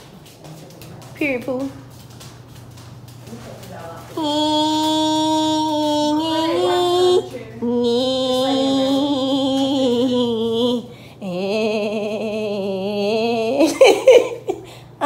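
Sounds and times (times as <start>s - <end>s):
woman singing long notes: 4.2s - 13.8s.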